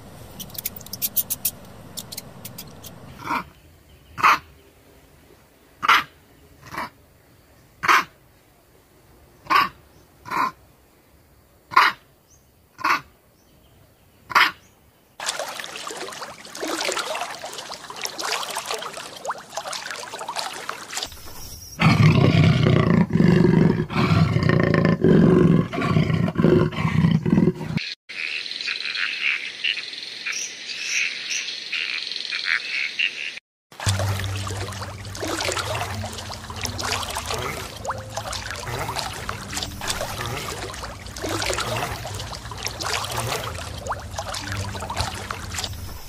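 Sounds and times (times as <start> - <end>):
tree frog chirping: 0.0 - 3.6.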